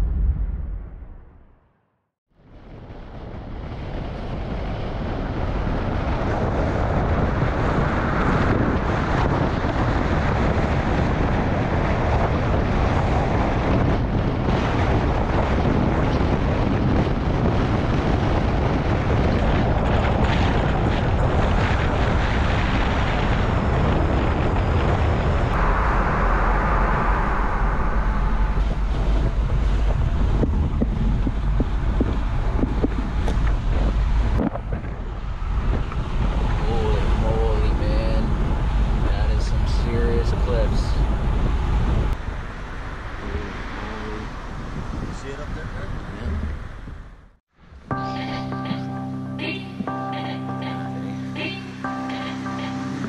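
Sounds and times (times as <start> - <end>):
car road and wind noise: 0.0 - 1.6, 2.3 - 53.0.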